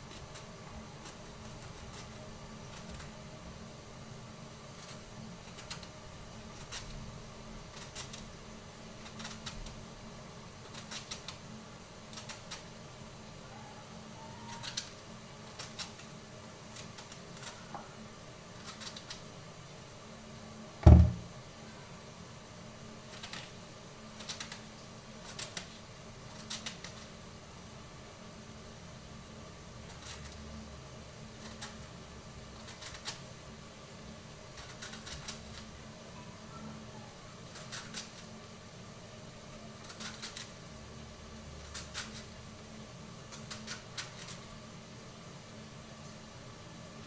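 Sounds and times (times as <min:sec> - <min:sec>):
loud thump: 0:20.8 - 0:21.3.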